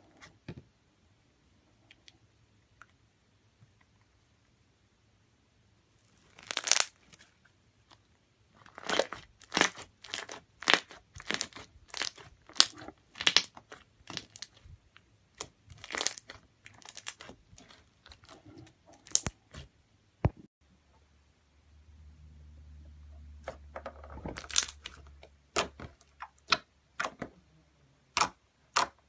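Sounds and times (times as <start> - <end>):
slime squelching and crackling: 6.0 - 8.0, 8.6 - 19.7, 23.4 - 27.4.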